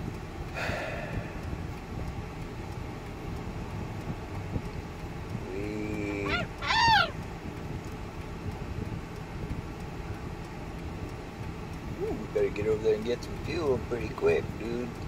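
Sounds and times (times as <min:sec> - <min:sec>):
road noise inside vehicle: 0:00.0 - 0:15.0
parrot calling: 0:06.1 - 0:07.2.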